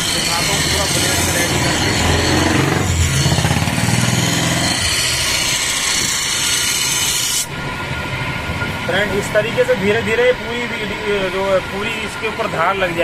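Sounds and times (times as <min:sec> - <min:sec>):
grinder grinding steel: 0:00.0 - 0:07.5.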